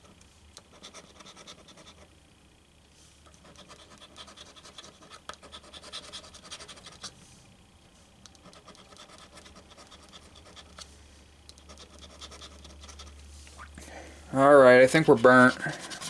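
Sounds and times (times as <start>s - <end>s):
coin scraping scratch-off ticket: 11.6s - 13.1s, 15.0s - 16.0s.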